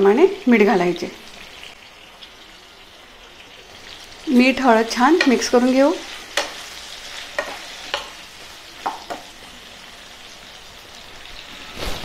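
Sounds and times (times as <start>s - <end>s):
vegetables sizzling in oil: 0.0s - 12.0s
spatula scraping pan: 4.9s - 8.3s.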